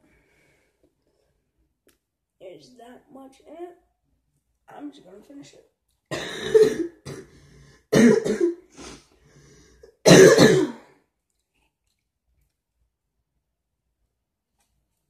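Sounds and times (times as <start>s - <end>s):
man coughing: 6.1s - 7.3s, 7.9s - 8.6s, 10.0s - 10.8s
man clearing his throat: 7.9s - 8.6s, 10.0s - 10.9s.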